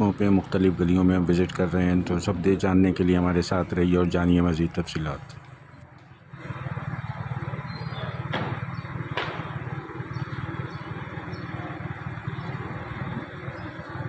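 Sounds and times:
small engine running: 6.3s - 14.0s
sharp knocks: 8.3s - 9.6s.

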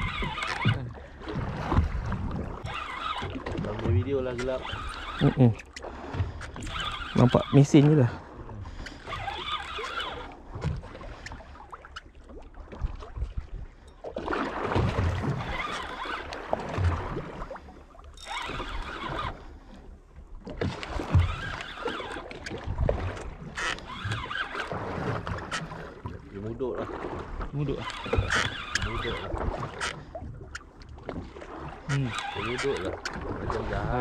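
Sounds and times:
water surging: 0.0s - 10.6s
waves thumping against hull: 0.0s - 34.0s
wind: 0.0s - 34.0s.

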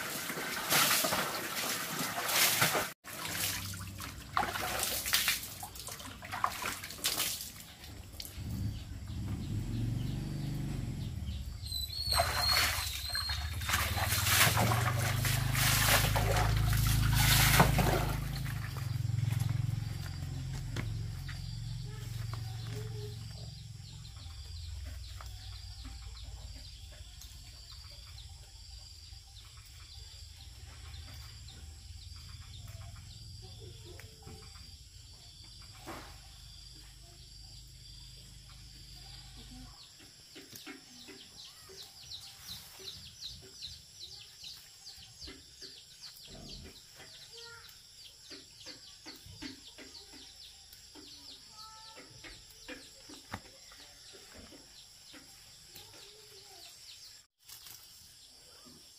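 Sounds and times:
birds chirping: 5.6s - 33.8s, 36.6s - 57.3s
low rumble: 8.4s - 11.9s
leafy plants rustling and snapping: 57.4s - 58.1s.

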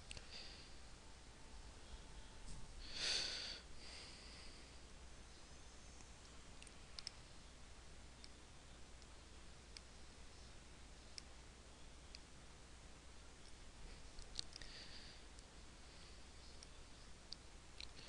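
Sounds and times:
low hum: 0.0s - 18.0s
computer mouse clicks: 6.0s - 7.2s, 14.2s - 14.7s, 17.3s - 18.0s.

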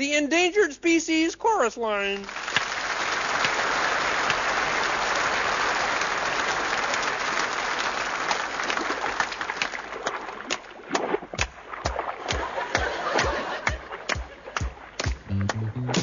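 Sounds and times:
audience applauding: 2.2s - 10.6s, 12.3s - 16.0s.

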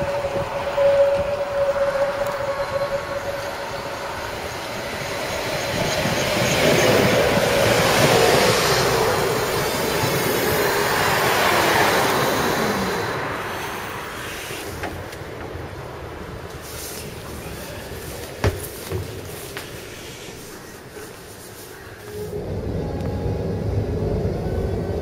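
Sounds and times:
high wheel squeal: 0.0s - 14.8s
tram wheels rumbling on rails: 0.0s - 25.0s
falling whine: 22.1s - 25.0s.

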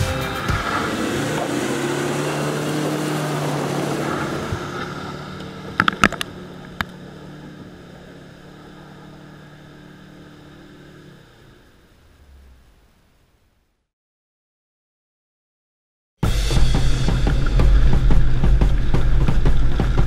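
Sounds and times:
diesel engine driving through mud: 0.0s - 12.2s, 16.6s - 20.0s.

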